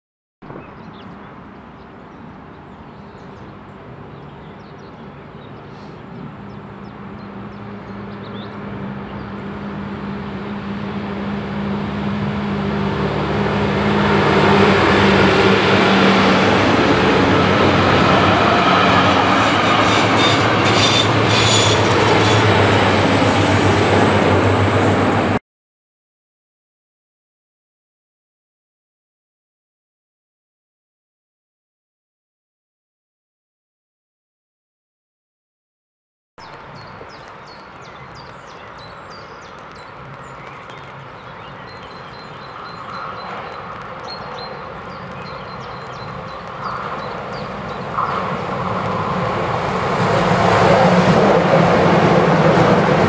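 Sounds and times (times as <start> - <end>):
diesel train engine hum: 2.2 - 25.4, 36.5 - 53.0.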